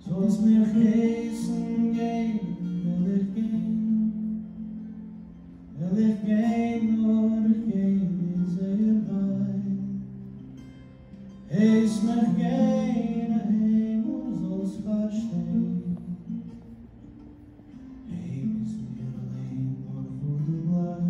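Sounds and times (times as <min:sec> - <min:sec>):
man singing slow song: 0:00.0 - 0:05.0, 0:05.7 - 0:10.7, 0:11.3 - 0:16.6, 0:17.8 - 0:21.0
strummed acoustic guitar: 0:00.0 - 0:21.0.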